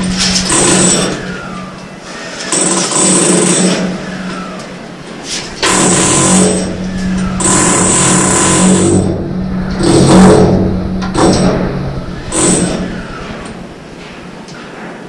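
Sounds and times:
hammer drill drilling into concrete: 2.4s - 4.5s, 5.6s - 9.0s.

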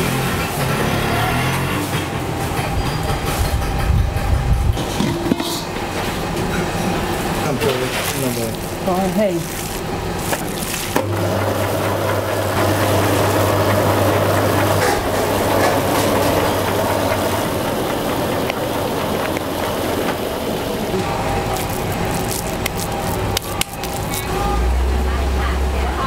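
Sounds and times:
hands squishing minced meat: 7.7s - 11.0s, 21.4s - 24.2s.

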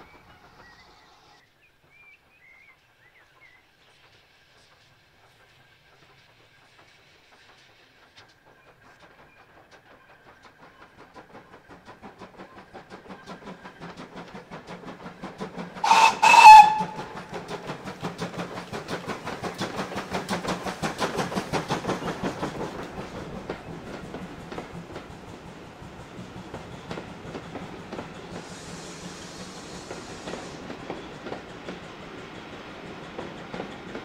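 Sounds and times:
steam locomotive exhaust beats: 0.0s - 34.0s
steam whistle blasts: 15.8s - 17.2s.

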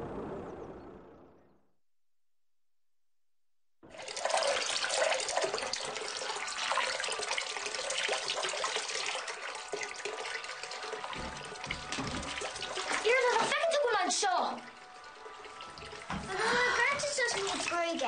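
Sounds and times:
tap water running onto hands: 3.9s - 18.0s.

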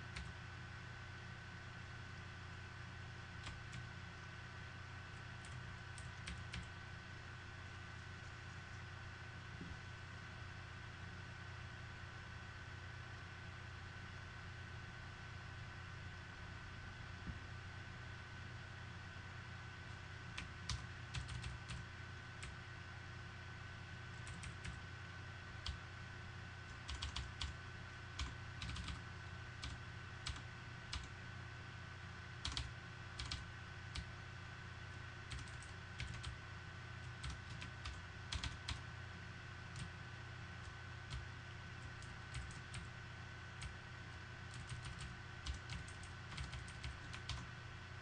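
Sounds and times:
faint steady hum: 0.0s - 48.0s
keyboard typing clicks: 5.4s - 6.8s, 20.4s - 21.8s, 24.2s - 24.8s, 26.8s - 27.6s, 28.2s - 29.0s, 29.6s - 31.1s, 32.4s - 34.1s, 35.3s - 36.4s, 37.1s - 38.8s, 41.8s - 42.9s, 44.5s - 47.5s.

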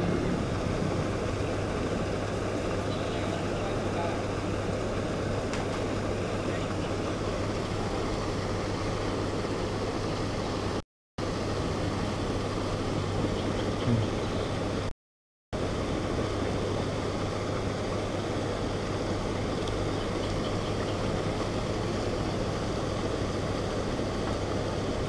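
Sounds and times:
low even hum: 0.0s - 14.9s, 15.6s - 25.0s
steady rushing noise: 0.0s - 14.9s.

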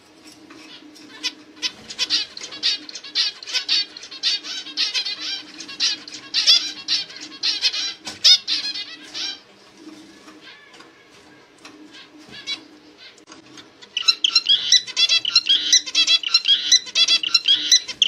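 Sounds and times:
finch chirping: 0.6s - 9.4s, 13.8s - 18.0s.

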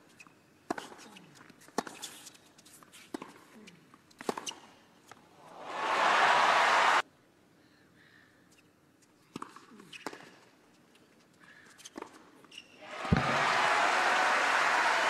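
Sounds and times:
crowd applauding and cheering: 5.5s - 7.0s, 12.9s - 15.0s.

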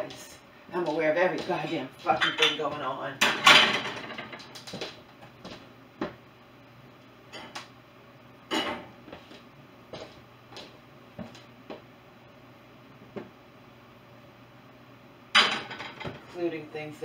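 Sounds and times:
dishes and utensils clinking: 2.2s - 4.1s.

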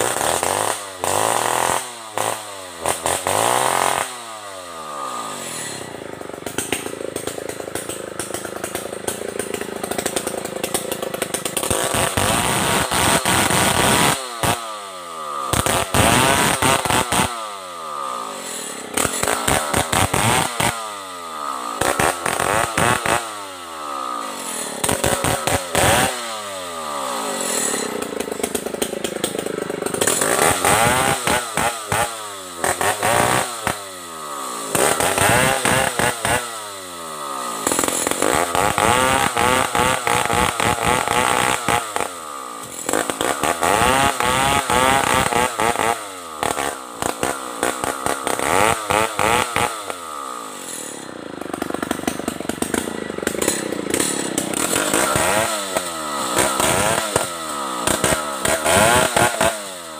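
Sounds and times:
chainsaw cutting wood: 0.0s - 59.9s.

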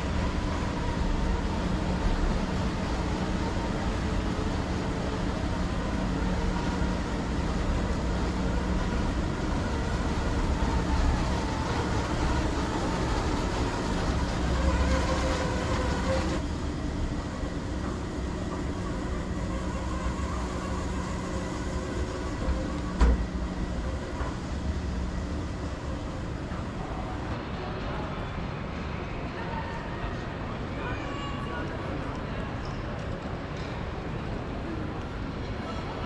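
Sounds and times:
short rising whine: 0.0s - 27.3s
monorail running with rumble: 0.0s - 36.0s.

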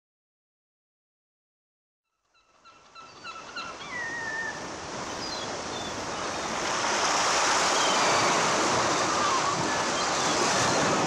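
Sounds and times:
gulls calling: 2.4s - 11.0s
waves washing on shore: 3.8s - 11.0s.

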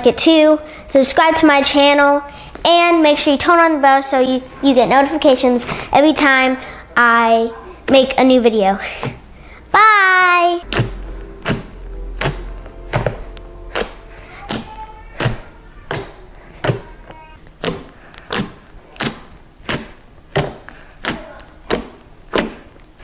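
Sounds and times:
fingers tapping fluffy slime: 7.8s - 8.2s, 10.7s - 23.0s.

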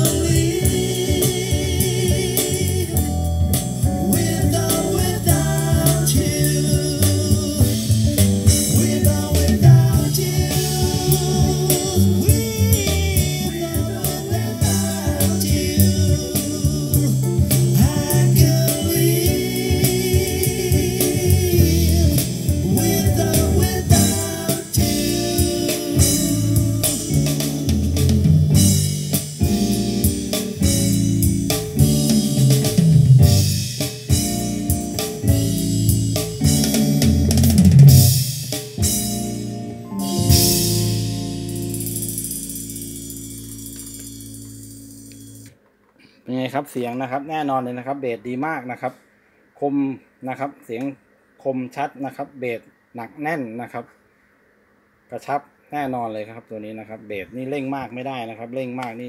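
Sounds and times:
music with singing drums and guitar: 0.0s - 45.5s.

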